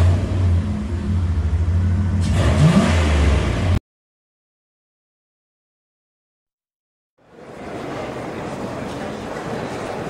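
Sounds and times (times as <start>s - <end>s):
car engine revving: 0.0s - 3.8s.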